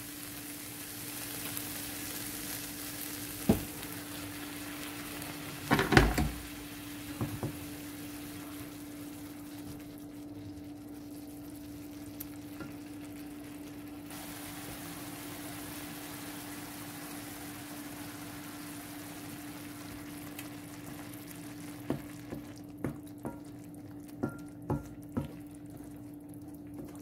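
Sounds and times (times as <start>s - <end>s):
sauce sizzling in a frying pan: 0.0s - 27.0s
wooden spoon knocking and scraping pan: 21.8s - 23.5s, 24.2s - 25.4s.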